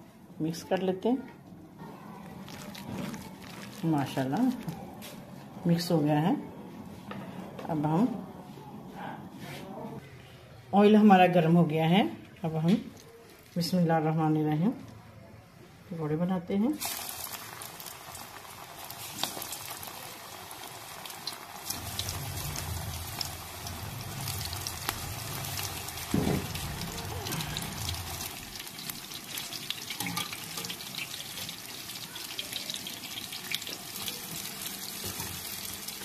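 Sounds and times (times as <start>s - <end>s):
food sizzling in hot oil: 16.8s - 36.0s.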